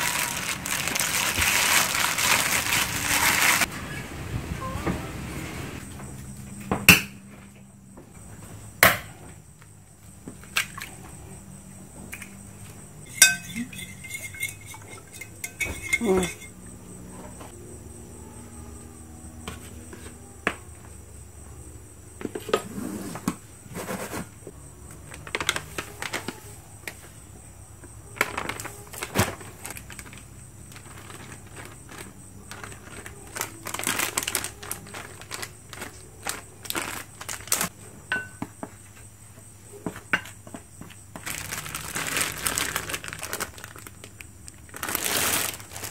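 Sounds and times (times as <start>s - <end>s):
eggs being beaten: 13.1s - 16.5s
utensils clinking on dishes: 13.1s - 16.6s.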